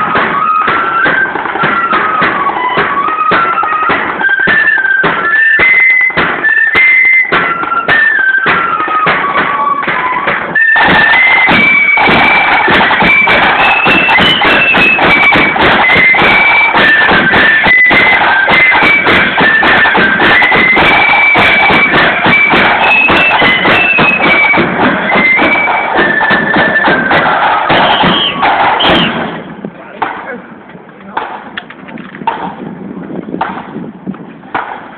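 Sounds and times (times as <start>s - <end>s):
shrill flutes melody: 0.0s - 29.6s
side drum rolls: 0.0s - 34.9s
bass drum: 7.3s - 30.2s.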